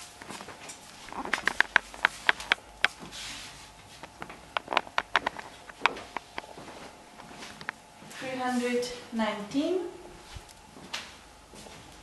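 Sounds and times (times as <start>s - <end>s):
footsteps on hard floor: 3.9s - 8.3s.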